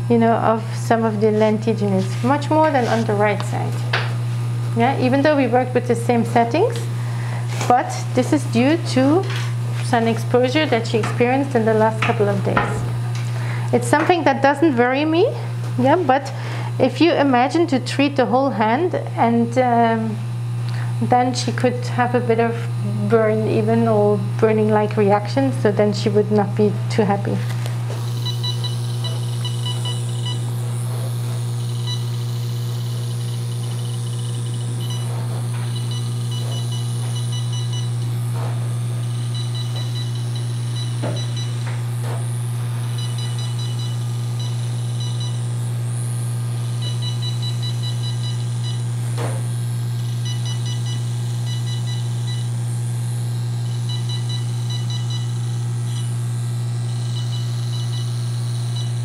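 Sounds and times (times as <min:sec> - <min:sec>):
steady low hum: 0:00.0 - 0:59.0
rapid high beeps: 0:28.1 - 0:30.4, 0:31.6 - 0:32.2, 0:33.1 - 0:35.1, 0:35.7 - 0:37.9, 0:39.2 - 0:41.6, 0:42.9 - 0:45.4, 0:46.8 - 0:48.8, 0:50.0 - 0:52.5, 0:53.6 - 0:55.3, 0:56.9 - 0:59.0.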